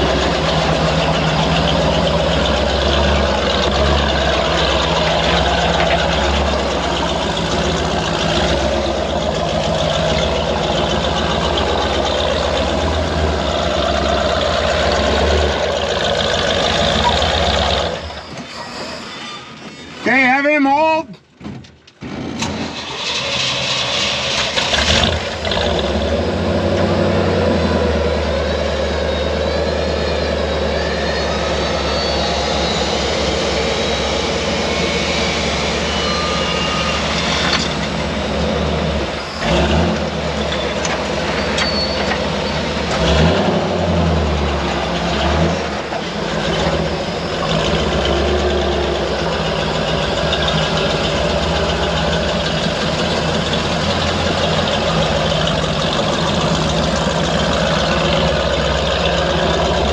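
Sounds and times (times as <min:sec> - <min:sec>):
truck engines running: 0:00.0 - 0:59.9
wavering high whine: 0:28.0 - 0:39.4.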